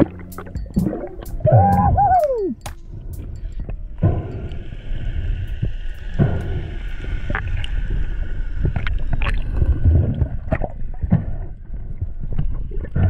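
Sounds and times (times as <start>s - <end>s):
sharp clicks and pops: 0.0s - 3.7s
underwater water rumble: 0.0s - 13.0s.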